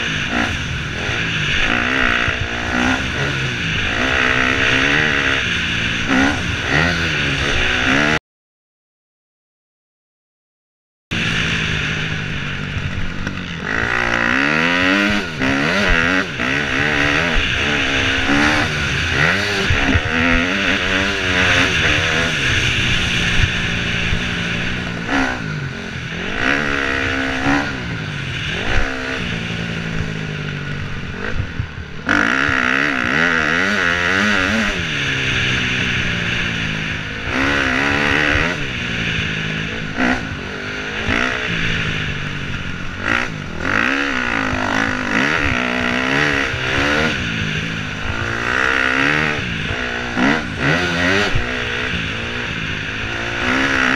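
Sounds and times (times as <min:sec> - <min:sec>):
dirt bike engine revving: 0:00.0 - 0:08.2, 0:11.1 - 0:53.9
wind rush on microphone: 0:11.2 - 0:32.2.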